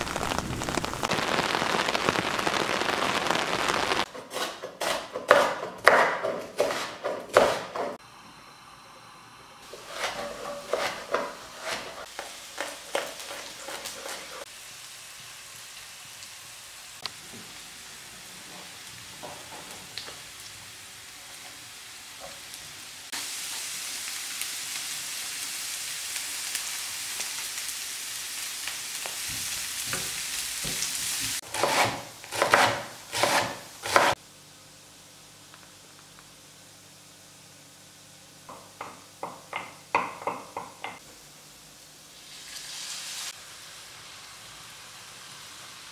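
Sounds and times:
frying crackle: 0:00.0 - 0:04.1, 0:09.6 - 0:45.9
sizzle in hot oil: 0:00.0 - 0:04.1, 0:10.6 - 0:45.9
knife chopping on wooden board: 0:04.1 - 0:08.0, 0:31.5 - 0:34.2.

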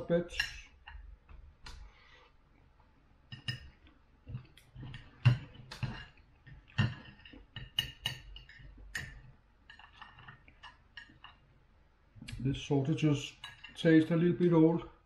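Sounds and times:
cutlery clinking on a plate: 0:03.3 - 0:03.8, 0:04.8 - 0:11.4, 0:13.3 - 0:13.9.

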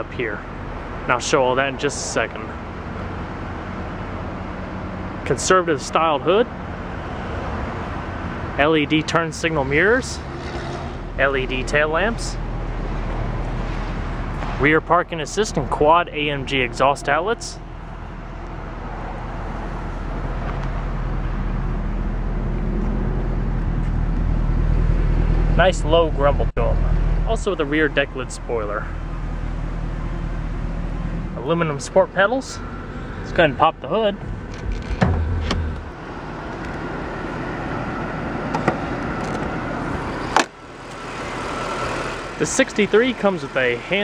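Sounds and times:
car engine idling: 0:11.0 - 0:44.0.

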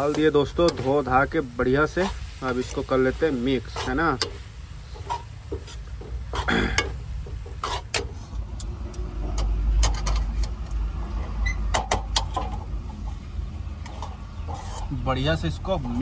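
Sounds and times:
metal spoon scraping a pan: 0:02.0 - 0:08.4, 0:13.8 - 0:15.1.

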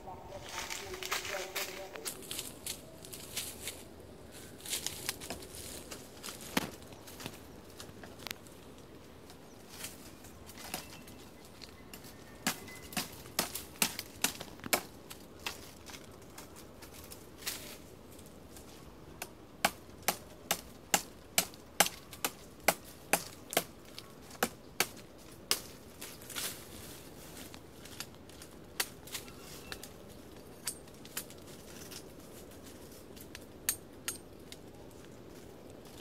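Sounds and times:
machete chopping branch: 0:12.5 - 0:15.0.

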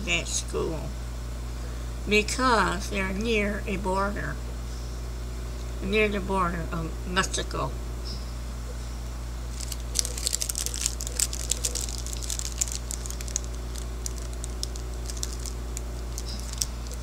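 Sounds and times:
low hum: 0:00.0 - 0:17.0
food wrapper crinkling: 0:09.5 - 0:17.0.

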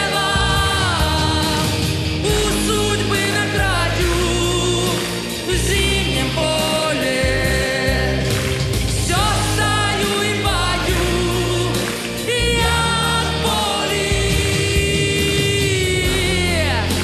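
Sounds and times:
woman singing into a microphone: 0:00.0 - 0:03.9, 0:09.3 - 0:16.9
instrumental accompaniment: 0:00.0 - 0:17.0.

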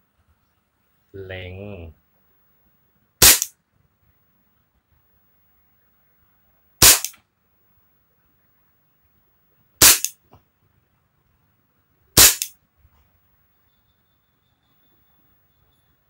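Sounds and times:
air pistol shots cracking: 0:03.2 - 0:03.6, 0:06.8 - 0:07.2, 0:09.8 - 0:10.2, 0:12.2 - 0:12.6.

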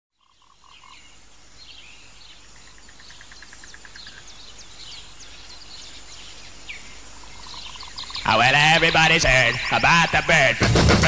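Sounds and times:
steady hiss: 0:00.4 - 0:11.0
rapid pulsed animal calls: 0:06.8 - 0:11.0.

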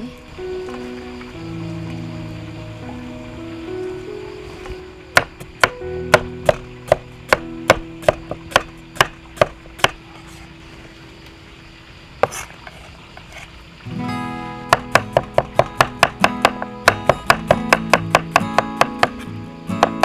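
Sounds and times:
cleaver chopping on wooden block: 0:05.2 - 0:10.0, 0:14.7 - 0:19.2, 0:19.8 - 0:20.0.

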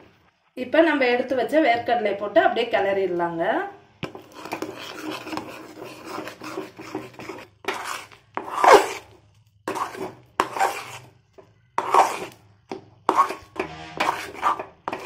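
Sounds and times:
metal spatula scraping pan: 0:04.1 - 0:11.2, 0:11.8 - 0:12.4, 0:13.0 - 0:15.0.

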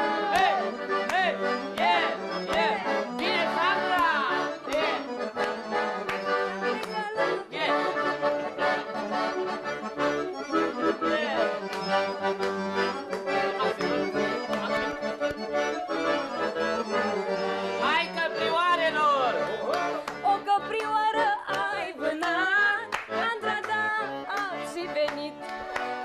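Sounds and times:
accordions playing fast runs: 0:00.0 - 0:26.0.

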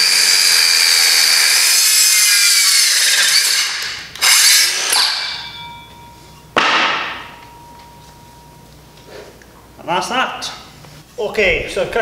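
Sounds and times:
circular saw cutting timber: 0:00.0 - 0:05.4.

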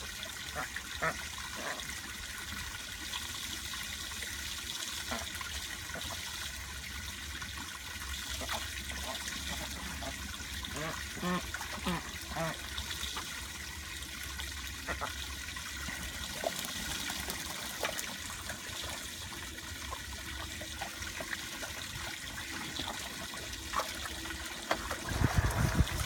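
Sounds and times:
water jetting from garden hose: 0:00.0 - 0:26.0
ducks splashing in water: 0:07.1 - 0:13.4, 0:14.6 - 0:26.0.

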